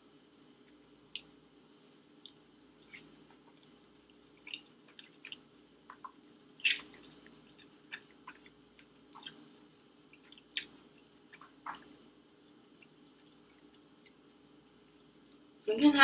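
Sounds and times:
person chewing noodles: 2.1s - 14.6s
wet mouth smacks and clicks: 4.4s - 8.5s.

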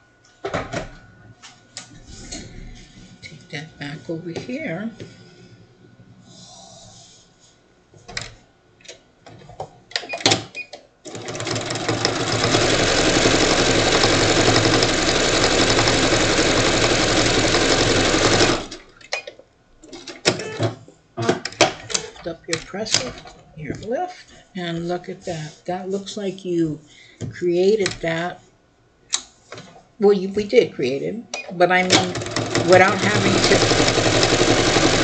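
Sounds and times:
sewing machine stitching: 11.1s - 18.9s, 31.8s - 35.0s.

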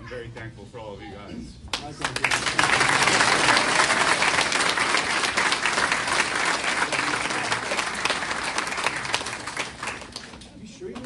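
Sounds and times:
people applauding: 1.7s - 10.6s.

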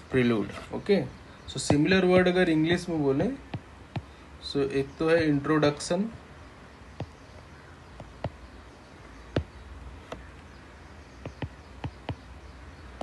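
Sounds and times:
low steady hum: 0.0s - 13.0s
stylus tapping on touchscreen: 1.6s - 2.4s, 3.5s - 4.1s, 7.0s - 7.2s, 8.0s - 8.4s, 11.2s - 12.3s.

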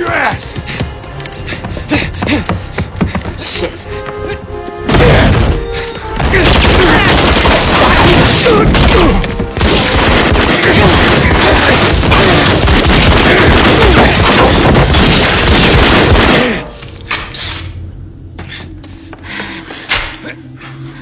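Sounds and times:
rapid gunfire: 6.4s - 9.0s, 9.6s - 16.6s.

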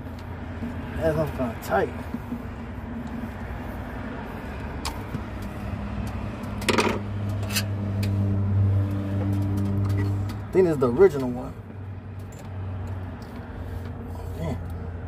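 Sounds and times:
low engine-like hum: 0.0s - 15.0s.

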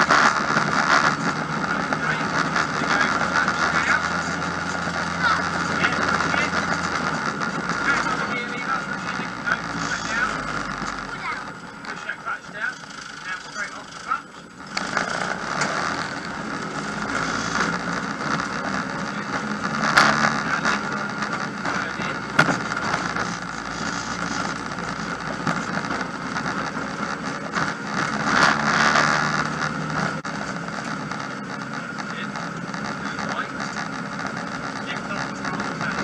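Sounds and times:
car engine and road noise: 0.0s - 36.0s
sharp knocks: 22.4s - 22.7s.

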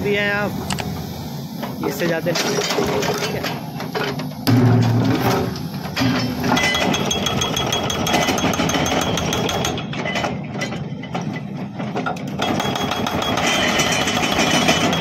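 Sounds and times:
excavator engine running: 0.0s - 15.0s
hydraulic breaker hammering rock: 4.5s - 10.9s, 12.0s - 15.0s.

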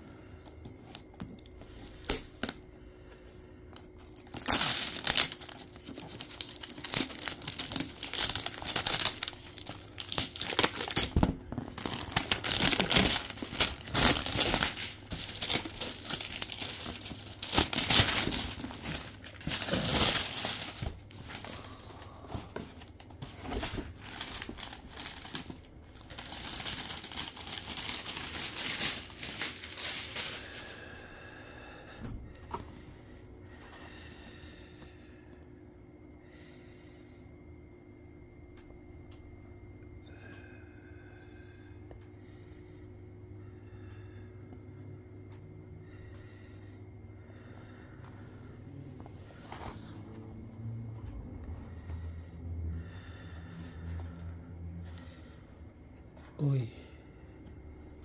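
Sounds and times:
plastic wrap crinkling and tearing: 3.8s - 30.8s.

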